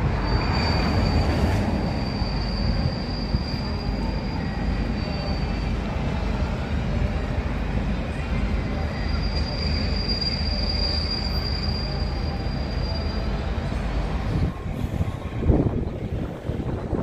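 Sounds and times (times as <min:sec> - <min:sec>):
high wheel squeal: 0:00.0 - 0:06.3, 0:08.4 - 0:14.0
train rumble: 0:00.0 - 0:17.0.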